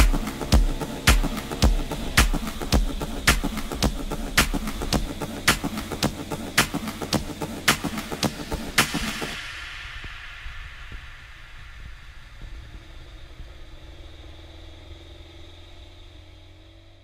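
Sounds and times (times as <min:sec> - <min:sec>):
music crash: 0:00.0 - 0:13.6
faint steady hum: 0:00.0 - 0:16.1
low rumble: 0:00.0 - 0:16.4.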